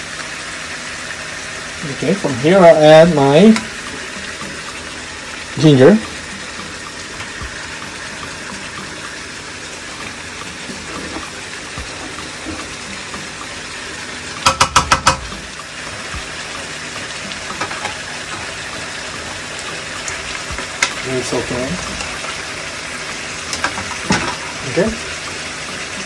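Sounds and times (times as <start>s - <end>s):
food sizzling in a wok: 0.0s - 26.0s
sharp knocks: 14.4s - 16.3s.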